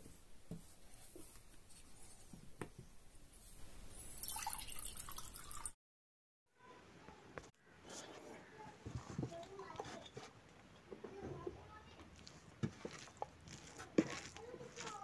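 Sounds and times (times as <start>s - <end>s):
water pouring into a glass: 4.2s - 5.8s.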